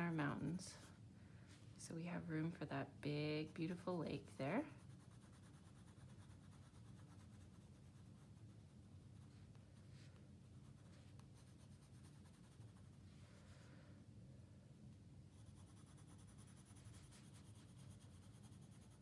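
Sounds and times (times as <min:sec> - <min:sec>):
low room hum: 0:00.0 - 0:19.0
pencil shading on paper: 0:04.8 - 0:09.3, 0:15.3 - 0:19.0.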